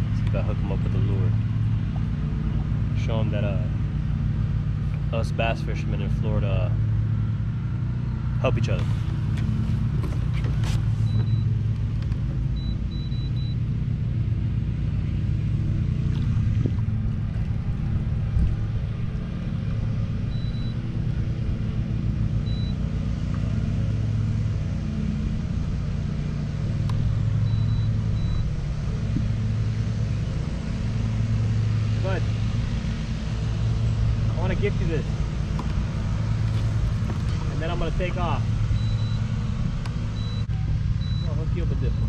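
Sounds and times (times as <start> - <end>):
outboard motor idling: 0.0 - 42.0.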